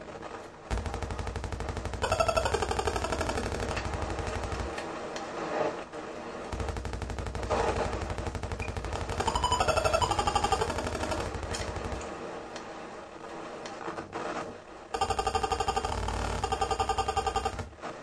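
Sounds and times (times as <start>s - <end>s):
rattling stutter of pulses: 0.7s - 5.2s, 6.4s - 12.4s.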